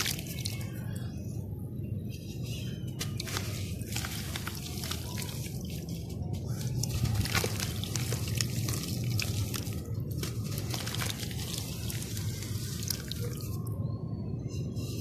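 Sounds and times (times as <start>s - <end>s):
water sloshing and splashing: 0.0s - 1.1s, 2.4s - 13.8s
small water drips: 6.7s - 13.8s.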